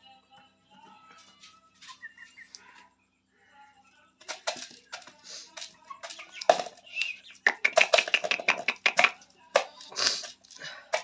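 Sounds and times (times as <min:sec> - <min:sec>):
chickens flapping wings: 0:07.5 - 0:09.7.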